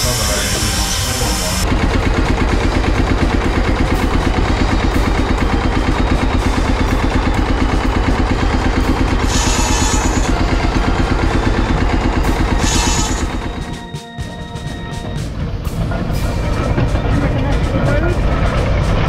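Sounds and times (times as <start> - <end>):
circular saw cutting wood: 0.0 - 13.9
tractor engine running: 0.0 - 19.0.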